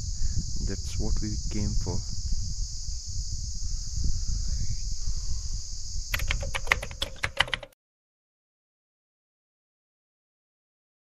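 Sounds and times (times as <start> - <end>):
wind on microphone: 0.0 - 7.7
crickets chirping: 0.0 - 7.8
sharp clicks: 6.1 - 7.8.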